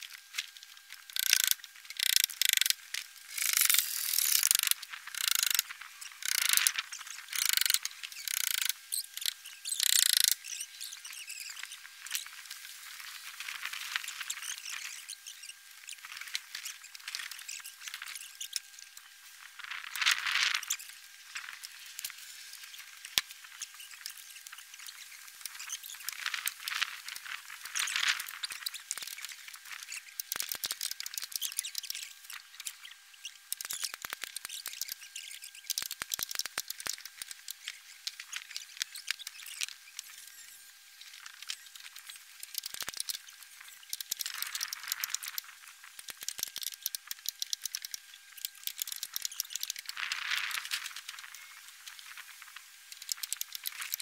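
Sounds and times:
small sharp clicks: 0:00.0 - 0:12.3, 0:21.6 - 0:40.2, 0:41.0 - 0:52.2, 0:52.9 - 0:54.0.

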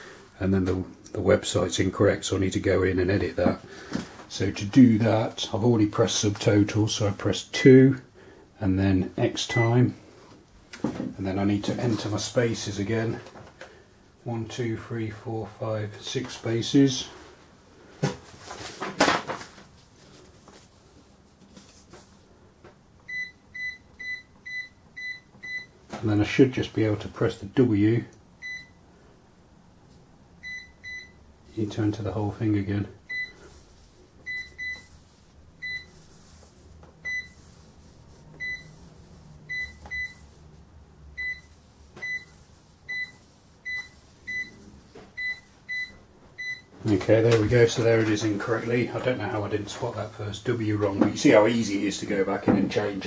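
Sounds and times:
plastic sheet rustling: 0:18.1 - 0:22.2
cash register beep: 0:34.3 - 0:34.9, 0:35.6 - 0:35.9, 0:37.0 - 0:37.4, 0:38.4 - 0:38.7, 0:39.5 - 0:40.2, 0:41.2 - 0:44.6, 0:45.2 - 0:46.7.

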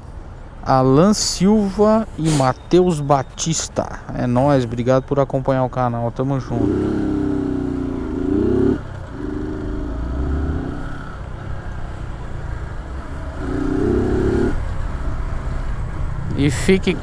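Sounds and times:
low road rumble: 0:00.0 - 0:17.0
motorcycle engine accelerating: 0:06.5 - 0:11.4, 0:12.5 - 0:14.8.

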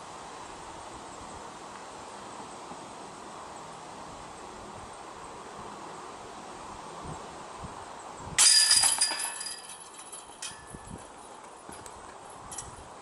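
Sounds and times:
chains rattling and ringing: 0:08.4 - 0:11.1.

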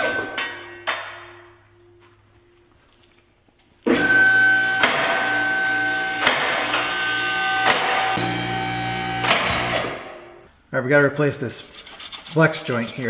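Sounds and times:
hydraulic pump motor whining: 0:03.9 - 0:10.1.

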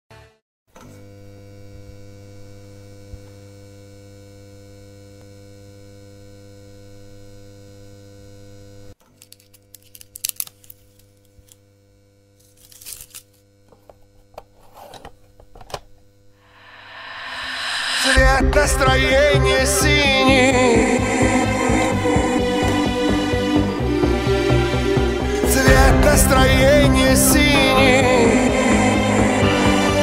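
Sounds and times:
crackles and clicks: 0:09.2 - 0:11.6.

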